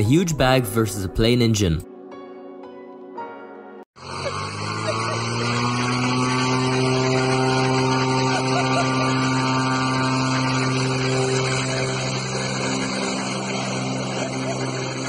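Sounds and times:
propeller plane engine drone: 4.0 - 15.0.

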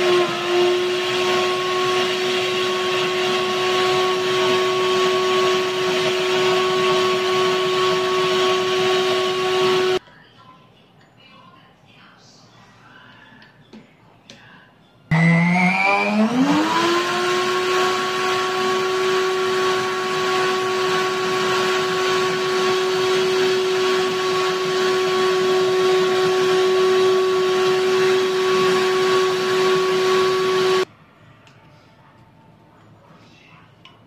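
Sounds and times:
blender motor whine: 0.0 - 10.0, 15.1 - 30.9.

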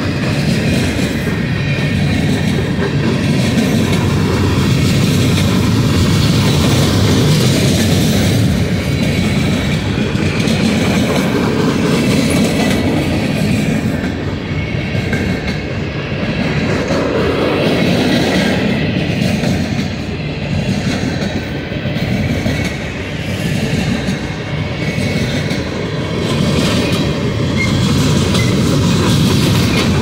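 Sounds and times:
freight train wheels rumbling: 0.0 - 30.0.

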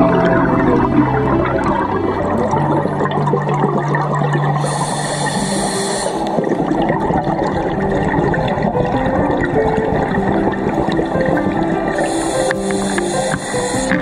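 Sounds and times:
underwater bubbling of exhaled air: 0.0 - 14.0
high hiss: 4.6 - 6.4, 11.9 - 14.0.

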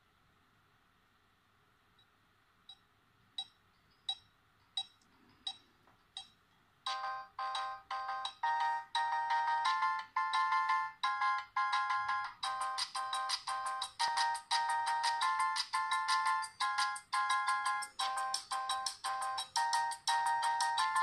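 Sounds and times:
phone ringtone ticks: 3.4 - 21.0
electronic ringtone tune: 6.9 - 21.0.

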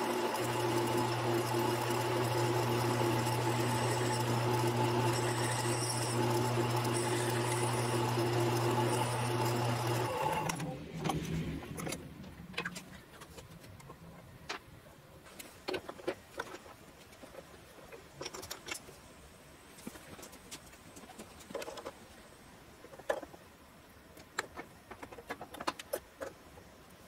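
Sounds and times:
lathe motor running and spinning down: 0.0 - 10.7.

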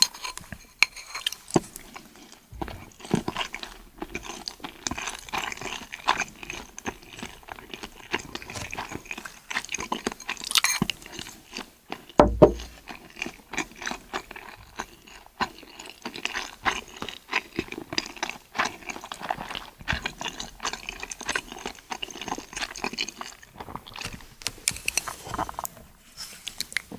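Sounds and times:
chewing: 0.0 - 26.9
loud low thump: 12.2 - 12.7.

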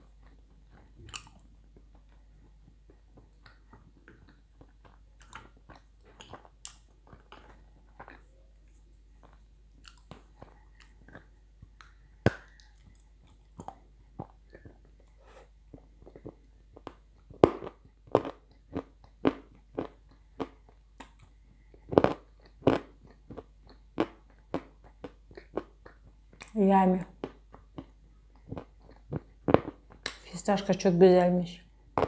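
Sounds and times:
crunching and chewing clay chunks: 0.0 - 30.2.

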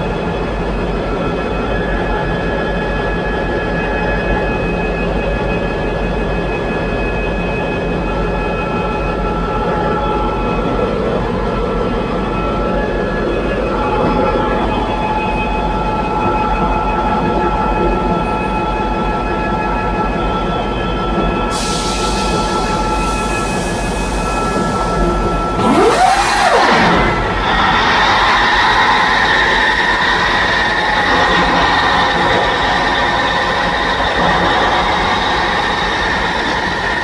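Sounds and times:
steady whining tones: 0.0 - 37.0
sudden hiss: 21.5 - 25.0
marine diesel engine din: 21.6 - 37.0.

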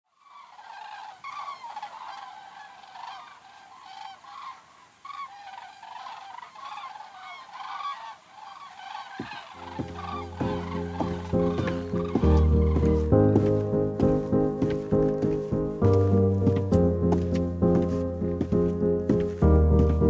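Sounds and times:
geese honking: 0.2 - 20.0
music with steady beat: 9.7 - 20.0.

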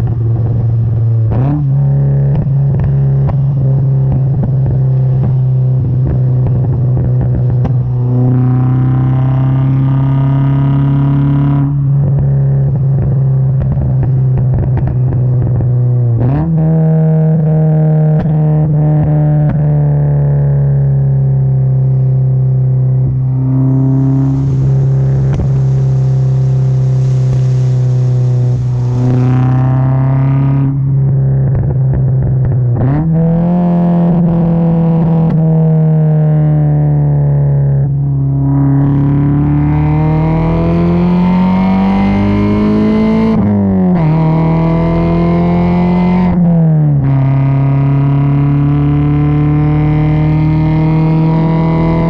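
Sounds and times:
car exhaust engine note: 0.0 - 52.0
exhaust crackles: 18.1 - 35.6
rush of hiss: 24.2 - 29.0.

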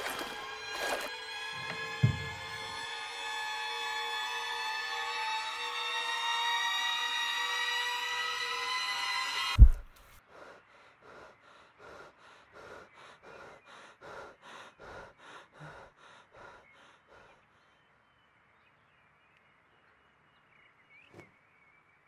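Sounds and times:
deep boom: 9.6 - 9.9.

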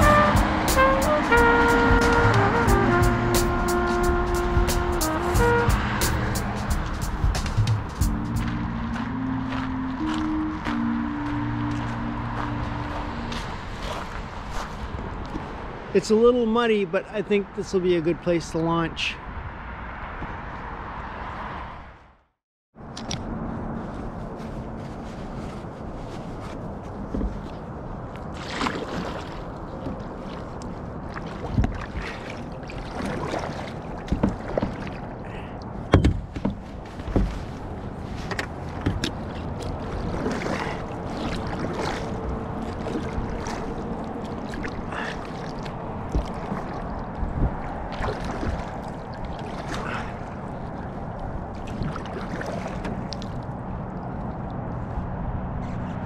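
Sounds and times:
water washing: 0.0 - 9.2, 28.2 - 54.2
paddle splashing in water: 11.7 - 15.8, 24.5 - 54.4.

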